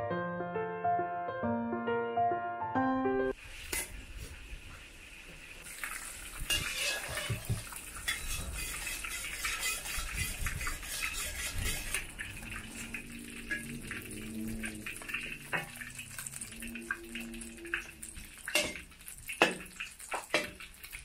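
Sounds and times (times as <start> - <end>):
metal spatula scraping a wok: 6.5 - 13.7.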